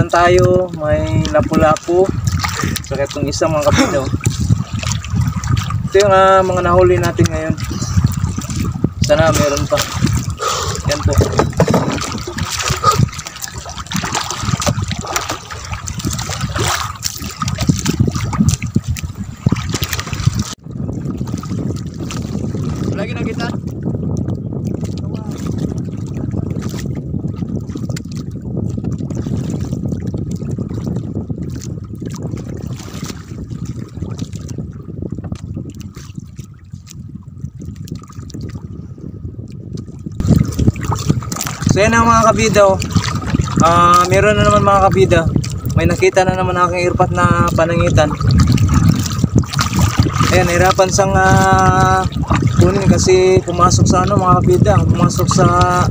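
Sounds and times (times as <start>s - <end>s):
seawater splashing and trickling: 0.0s - 38.8s, 39.4s - 55.9s
sea water sloshing: 0.0s - 55.9s.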